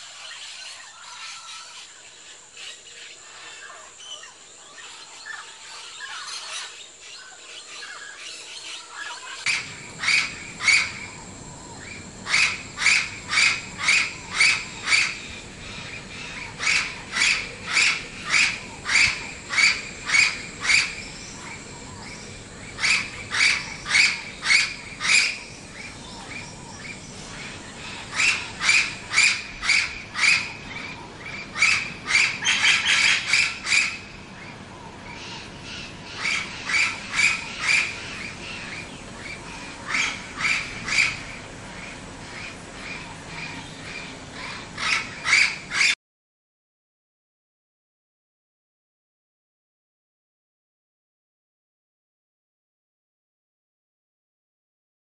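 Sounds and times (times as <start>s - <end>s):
parrot calling: 9.4s - 21.6s, 22.7s - 25.5s, 27.8s - 34.1s, 35.1s - 46.0s.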